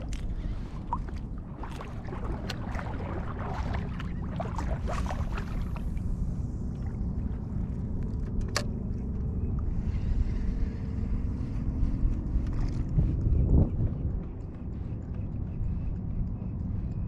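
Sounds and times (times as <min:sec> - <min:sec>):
small splashes: 0:00.0 - 0:06.0
water sloshing: 0:00.0 - 0:09.9
wind rumbling on microphone: 0:00.0 - 0:17.0.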